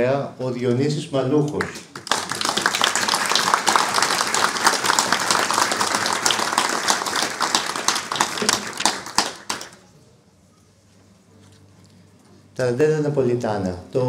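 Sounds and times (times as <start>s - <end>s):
audience applause: 1.9s - 9.8s.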